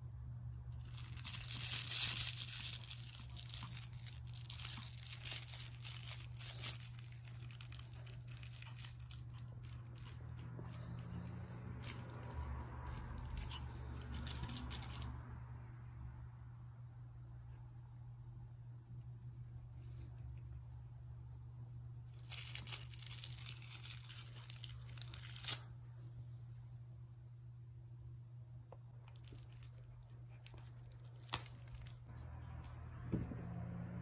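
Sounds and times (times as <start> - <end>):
plush toy rustling: 0.8 - 15.2, 22.1 - 25.7, 29.1 - 32.2.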